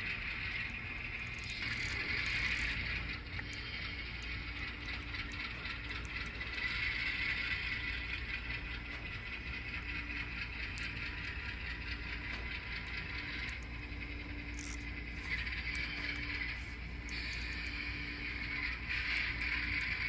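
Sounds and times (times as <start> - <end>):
model locomotive humming: 0.0 - 20.0.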